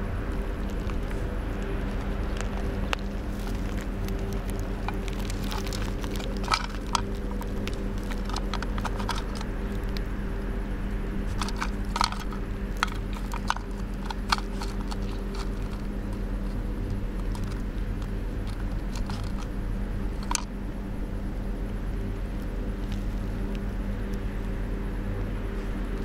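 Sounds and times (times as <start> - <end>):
steady low hum: 0.0 - 26.0
fox rummaging clicks and rattles: 2.3 - 10.0, 11.2 - 20.5.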